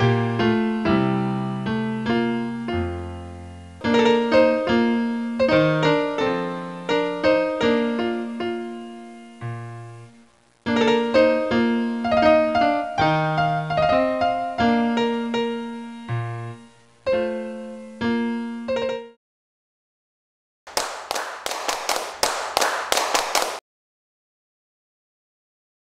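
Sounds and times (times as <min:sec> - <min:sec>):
piano music: 0:00.0 - 0:19.2
dense crackling noise: 0:09.4 - 0:11.3.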